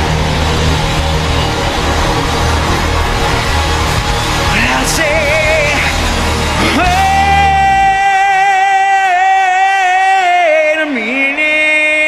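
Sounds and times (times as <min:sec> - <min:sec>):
live rock band: 0:00.0 - 0:09.0
man singing long high note: 0:04.4 - 0:12.0.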